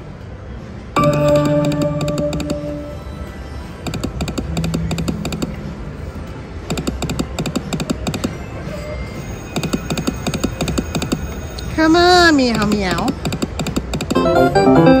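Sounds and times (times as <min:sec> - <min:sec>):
steady background hum: 0:00.0 - 0:15.0
slot machine electronic ticking: 0:01.0 - 0:03.2, 0:03.8 - 0:05.8, 0:09.4 - 0:15.0.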